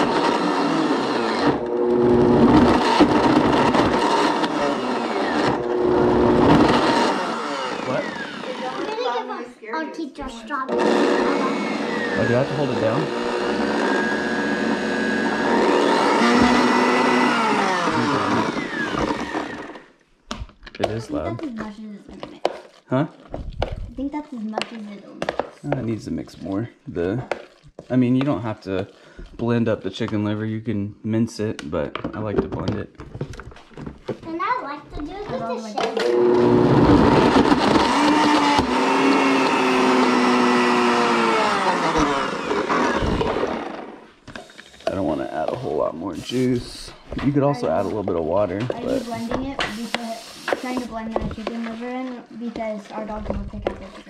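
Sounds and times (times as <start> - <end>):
blender motor running: 0.0 - 9.2, 10.7 - 20.0, 35.8 - 51.0.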